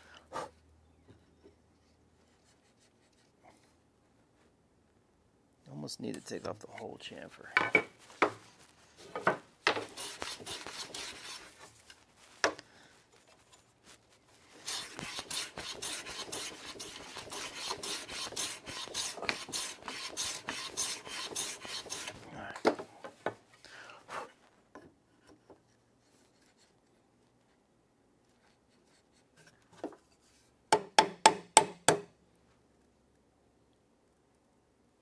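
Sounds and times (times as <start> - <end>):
hand plane shaving wood: 9.7 - 11.7, 14.6 - 22.2.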